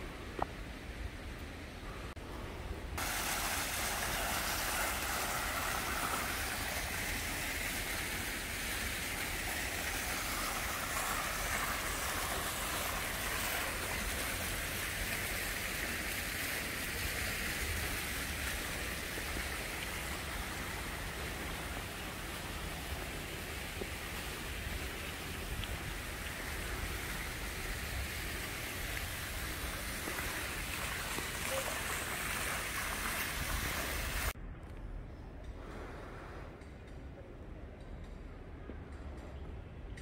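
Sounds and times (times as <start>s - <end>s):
fountain water splashing into basin: 3.0s - 34.4s.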